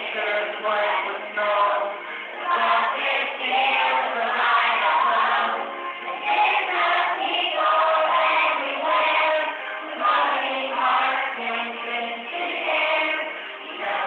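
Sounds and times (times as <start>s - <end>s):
children singing together: 0.0s - 14.0s.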